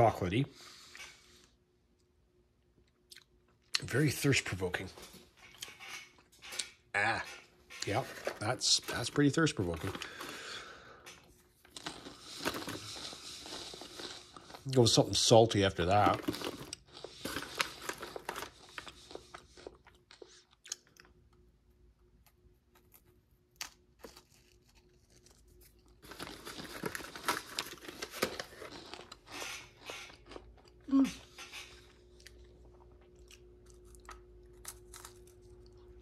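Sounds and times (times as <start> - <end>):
crunching and chewing: 5.0 - 36.0
plastic snack pouch crinkling: 11.6 - 20.9, 22.7 - 29.3.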